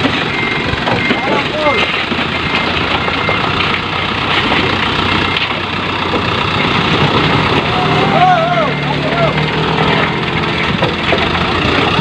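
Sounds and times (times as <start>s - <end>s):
diesel truck engine running: 0.0s - 12.0s.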